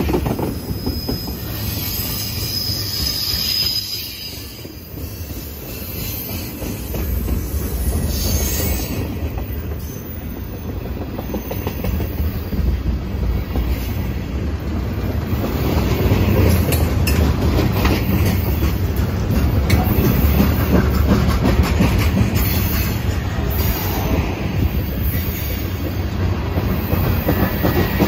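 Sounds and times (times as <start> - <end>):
freight train rumbling past: 0.0 - 28.0
wheels clacking over rail joints: 15.2 - 24.1.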